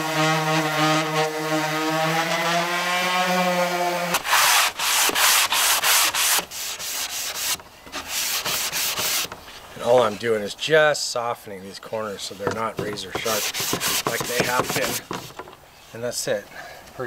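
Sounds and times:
electric orbital sander humming: 0.0s - 9.3s
sandpaper rasping on wood: 0.0s - 9.3s, 12.8s - 15.4s.

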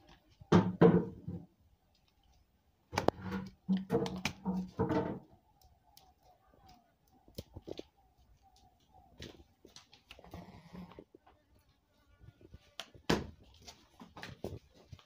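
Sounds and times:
goats knocking on concrete floor: 3.0s - 5.3s.

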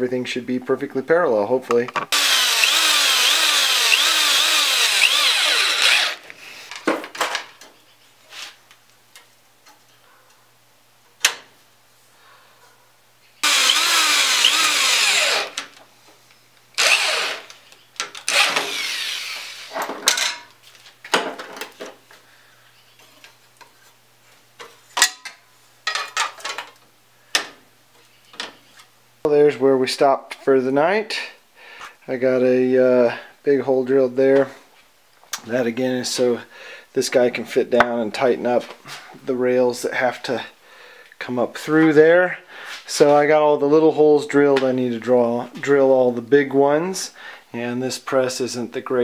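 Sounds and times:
power drill driving screws: 2.1s - 6.2s, 13.4s - 15.6s, 16.8s - 17.6s, 18.3s - 19.7s.

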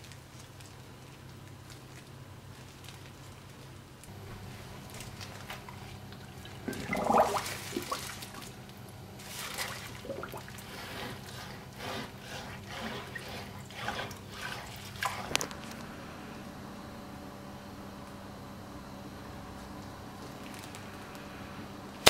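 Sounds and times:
water splashing in steel sink: 5.0s - 8.6s, 9.2s - 11.5s
blade scraping wet fish: 9.2s - 15.5s.

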